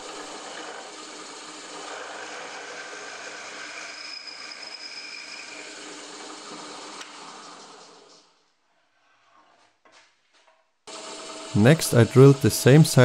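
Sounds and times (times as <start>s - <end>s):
drill press drilling wood: 0.0s - 4.1s, 10.9s - 13.0s.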